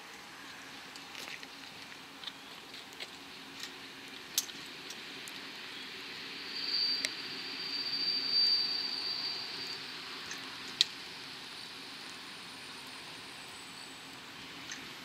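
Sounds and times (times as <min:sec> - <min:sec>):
distant railcar rumble: 0:00.0 - 0:15.0
general hiss: 0:00.0 - 0:15.0
thin high-pitched squeal: 0:06.4 - 0:10.3.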